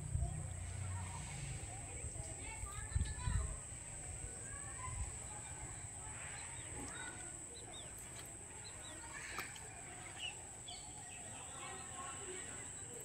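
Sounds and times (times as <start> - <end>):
birds chirping: 4.0 - 13.0.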